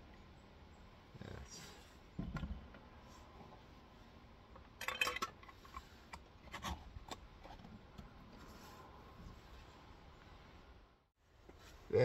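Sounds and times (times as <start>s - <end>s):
glass jar knocks and clinks: 4.8s - 5.3s.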